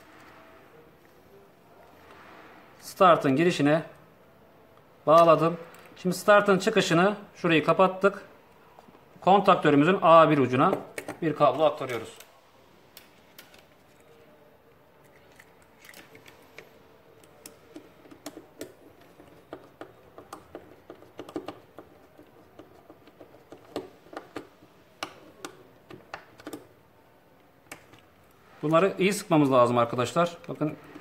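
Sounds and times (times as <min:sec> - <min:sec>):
plastic clicks and taps: 0:10.7 - 0:11.2.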